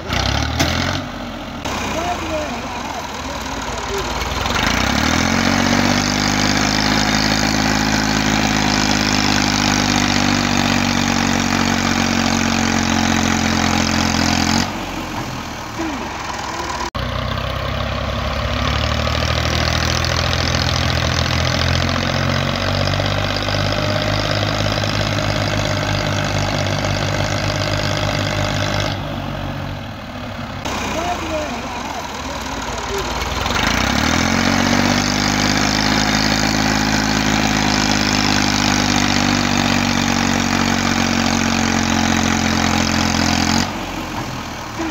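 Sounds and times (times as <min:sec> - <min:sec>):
tractor diesel engine under load: 0:00.0 - 0:44.9.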